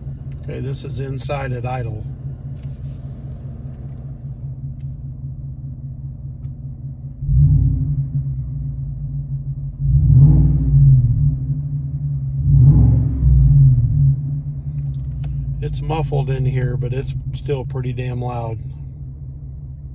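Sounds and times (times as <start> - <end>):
car engine idling: 0.0 - 19.9
engine throttle blips: 0.0 - 19.9.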